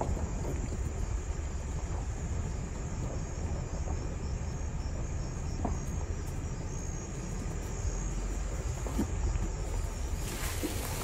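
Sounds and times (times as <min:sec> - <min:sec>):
crickets chirring: 0:00.0 - 0:11.0
vehicle rumbling: 0:00.0 - 0:11.0.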